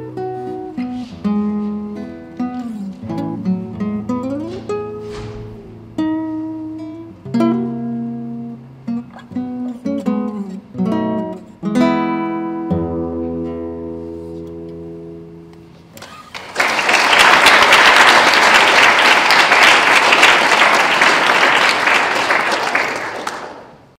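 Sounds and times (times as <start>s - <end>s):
guitar chords ringing: 0.0s - 15.8s
audience applause: 16.0s - 23.9s.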